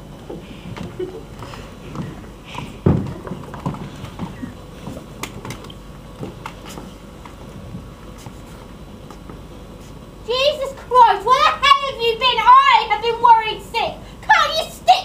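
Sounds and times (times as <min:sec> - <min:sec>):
faint steady hum: 0:00.0 - 0:15.0
furniture knocking and shuffling: 0:00.3 - 0:05.6.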